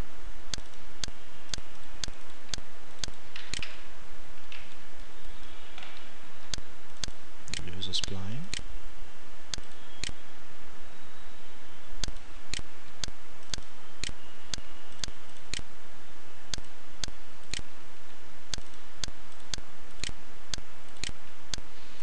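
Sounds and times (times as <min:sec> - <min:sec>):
steady background hiss: 0:00.0 - 0:22.0
regular ticking: 0:00.5 - 0:03.7, 0:06.4 - 0:08.8, 0:09.4 - 0:10.3, 0:12.0 - 0:15.8, 0:16.4 - 0:21.7.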